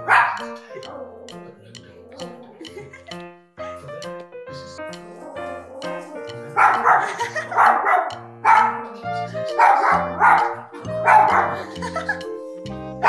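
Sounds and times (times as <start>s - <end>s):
small dog barking: 0.0s - 0.5s, 6.6s - 8.8s, 9.6s - 11.6s
tv background music: 0.0s - 13.0s.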